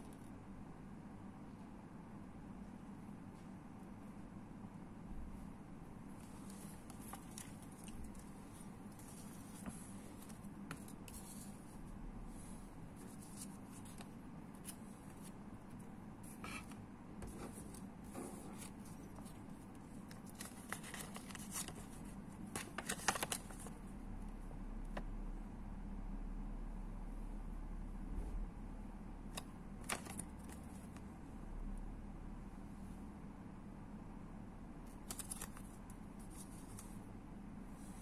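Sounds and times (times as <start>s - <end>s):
faint steady hum: 0.0s - 38.0s
paper rustling: 6.2s - 23.8s, 29.3s - 31.0s, 34.9s - 37.0s.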